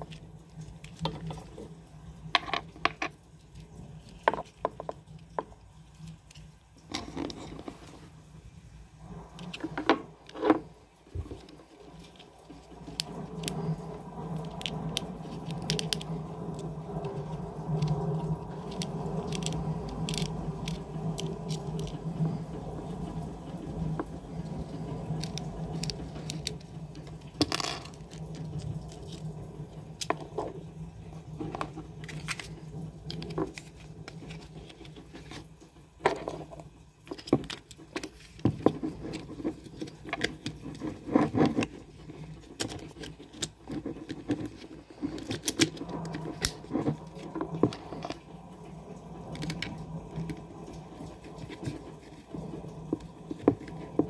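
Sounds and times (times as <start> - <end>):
steady low hum: 0.0 - 54.0
plastic and metal parts clicking: 18.6 - 22.0, 37.1 - 48.2.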